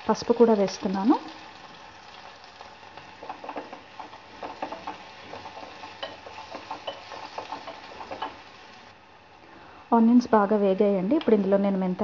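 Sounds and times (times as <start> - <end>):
vegetables sizzling in hot oil: 0.0 - 9.4
spatula scraping a pan: 3.0 - 8.4.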